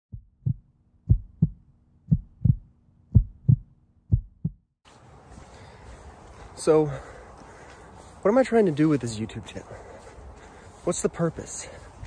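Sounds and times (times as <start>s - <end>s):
heartbeat double thumps: 0.1s - 4.8s.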